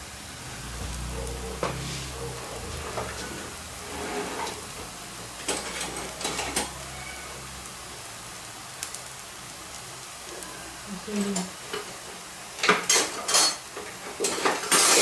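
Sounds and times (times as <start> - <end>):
flatbread sizzling on a griddle: 0.0 - 15.0
sharp crackles: 8.7 - 11.4.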